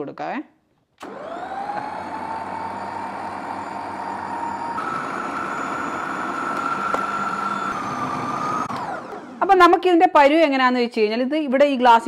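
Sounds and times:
mixer grinder motor whine: 0:01.0 - 0:09.9.

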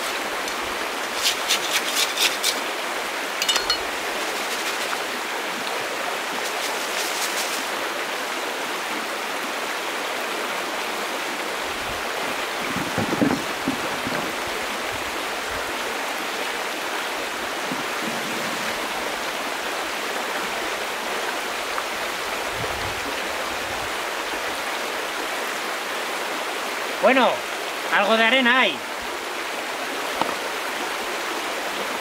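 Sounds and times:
river water rushing: 0:00.0 - 0:32.0.

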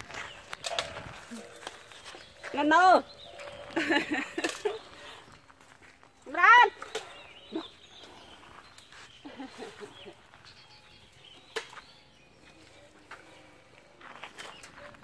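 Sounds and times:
bird chirps: 0:00.1 - 0:05.4, 0:06.8 - 0:15.0.

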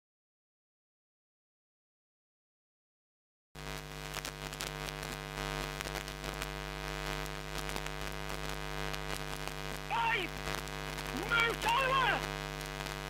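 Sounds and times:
electrical hum: 0:03.6 - 0:13.0
static crackles: 0:03.6 - 0:13.0.

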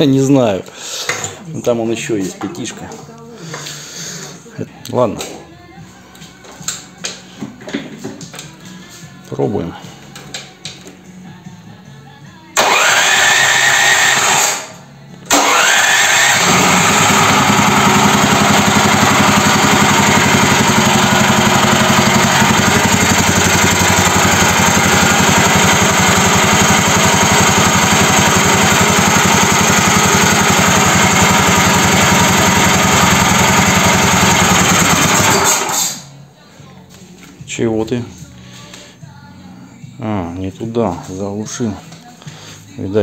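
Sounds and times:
tractor engine running steadily: 0:12.6 - 0:14.6, 0:15.3 - 0:36.0
electric starter cranking engine: 0:12.6 - 0:36.1.

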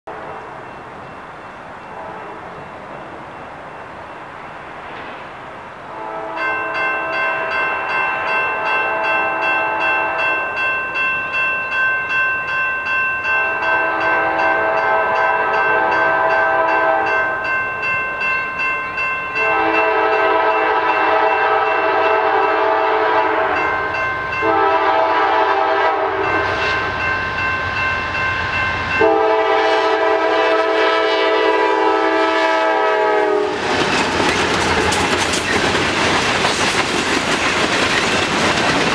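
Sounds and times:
crossing bells ringing: 0:00.1 - 0:04.2, 0:06.2 - 0:35.2
locomotive horn blasts: 0:01.9 - 0:02.4, 0:05.9 - 0:10.4, 0:13.3 - 0:17.4, 0:19.4 - 0:23.7, 0:24.4 - 0:26.9, 0:29.0 - 0:33.6.

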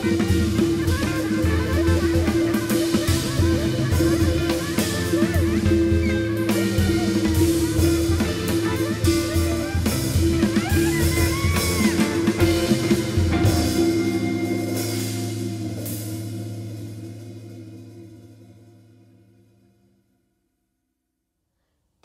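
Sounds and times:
tenor saxophone: 0:00.0 - 0:18.2
electric guitar: 0:00.0 - 0:18.9
drum kit: 0:00.0 - 0:19.8
steady held note: 0:00.0 - 0:20.2
gong struck: 0:12.3 - 0:19.7.

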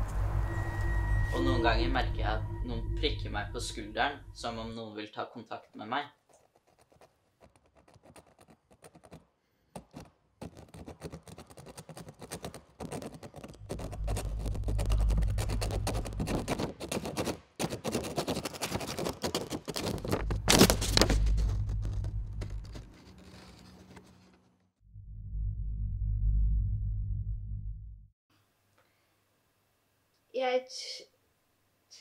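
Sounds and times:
low steady hum: 0:00.0 - 0:04.8, 0:13.6 - 0:16.5
pen scribbling on paper: 0:06.3 - 0:09.2, 0:09.8 - 0:20.2.

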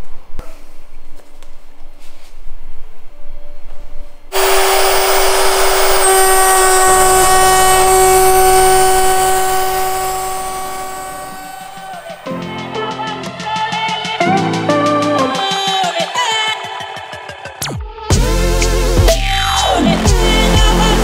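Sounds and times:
router spindle whine: 0:04.3 - 0:12.3.

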